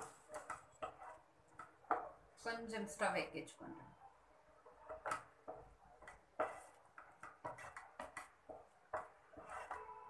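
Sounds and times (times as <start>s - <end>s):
wooden spatula scraping pan: 0.0s - 2.1s, 4.9s - 10.0s.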